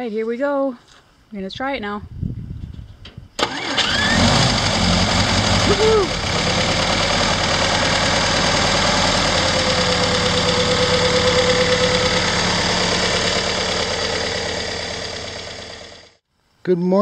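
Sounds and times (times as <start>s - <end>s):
engine idling: 3.4s - 16.2s.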